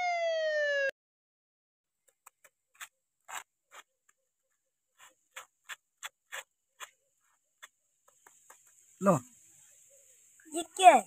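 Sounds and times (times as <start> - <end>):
scraping on paper: 2.4 - 8.8.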